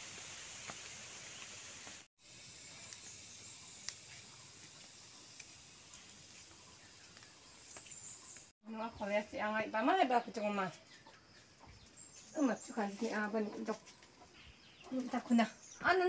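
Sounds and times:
steady high hiss: 0:00.0 - 0:08.5.

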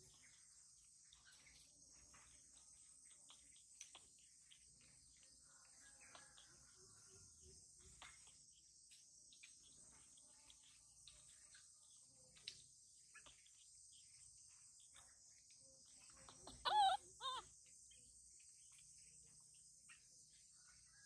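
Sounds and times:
insects chirring: 0:00.0 - 0:21.0
wavering animal calls: 0:16.3 - 0:17.6.

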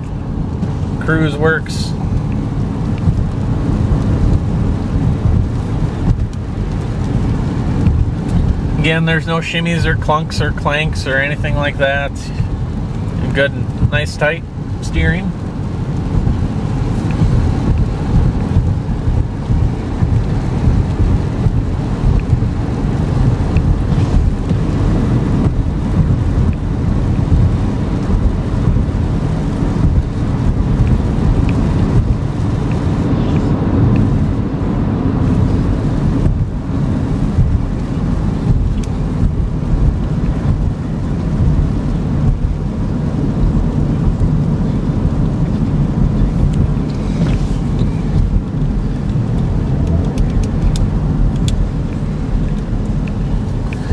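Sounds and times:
road and wind rumble in car: 0:00.0 - 0:53.9.

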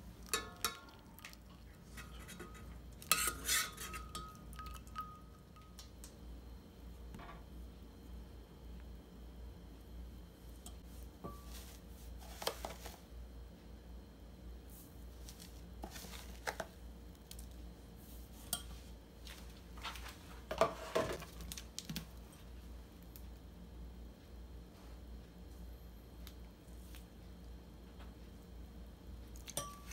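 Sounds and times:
metal spoon scraping glass bowl: 0:01.9 - 0:04.4.

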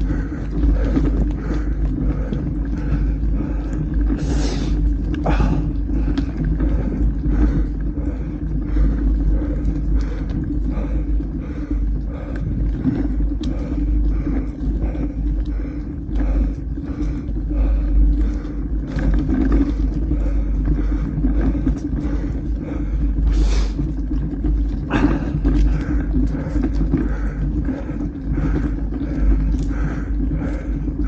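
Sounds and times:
bike ride noise: 0:00.0 - 0:31.0
wind rumbling on microphone: 0:00.0 - 0:31.0.

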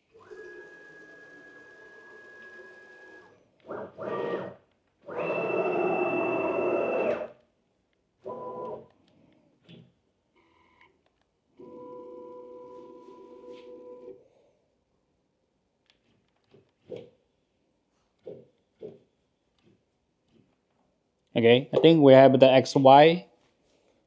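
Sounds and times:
motor whine of cnc router: 0:00.2 - 0:07.3.

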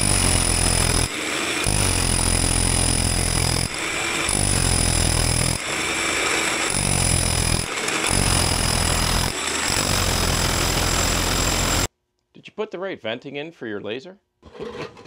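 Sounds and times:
rotary hammer drilling into brick: 0:00.0 - 0:11.9.

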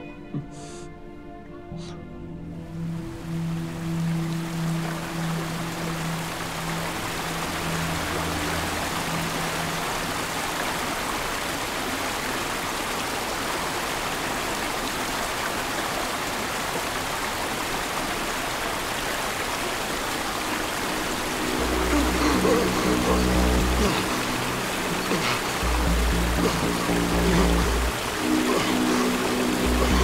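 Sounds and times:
low sustained music notes: 0:00.0 - 0:10.9, 0:19.6 - 0:30.0
river rushing over rocks: 0:03.2 - 0:30.0.

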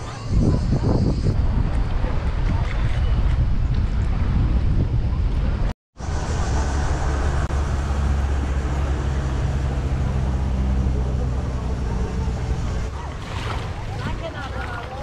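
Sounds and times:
water noise: 0:00.0 - 0:15.0
wind: 0:00.0 - 0:15.0
engine droning: 0:06.0 - 0:15.0.

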